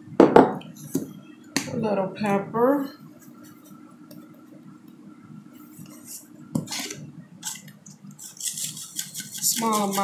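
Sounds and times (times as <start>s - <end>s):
low steady hum: 0.0s - 10.0s
pepper shaker rattling: 8.2s - 10.0s.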